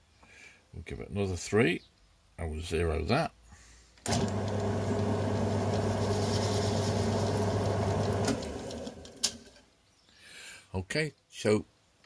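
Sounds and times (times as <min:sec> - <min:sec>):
metal lathe running: 0:04.1 - 0:09.4.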